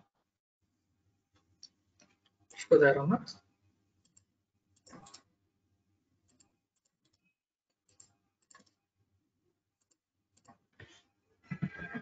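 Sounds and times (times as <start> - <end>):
faint computer mouse clicks: 7.9 - 8.8.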